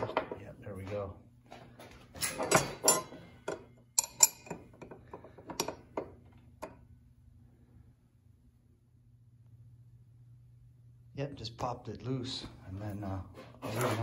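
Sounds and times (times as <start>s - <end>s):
wrenches clinking on metal: 2.2s - 5.8s.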